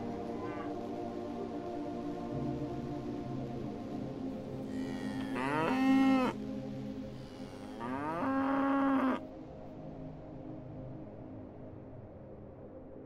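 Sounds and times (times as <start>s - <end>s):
cow mooing: 4.7s - 6.4s, 7.1s - 9.2s.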